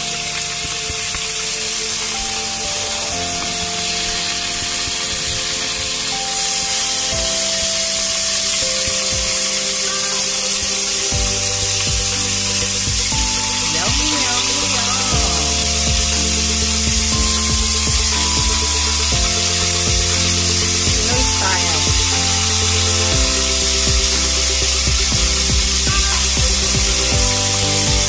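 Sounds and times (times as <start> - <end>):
background music of held notes: 0.0 - 28.0
beef sizzling in a frying pan: 0.0 - 28.0
deep bass note: 11.1 - 28.0.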